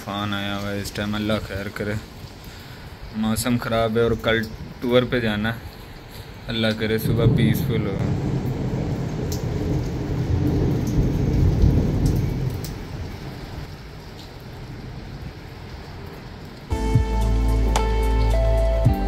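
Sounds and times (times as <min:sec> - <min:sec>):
raindrop ticks: 0:00.0 - 0:16.7
rain falling: 0:00.0 - 0:19.0
thunder rumbling: 0:06.8 - 0:13.7.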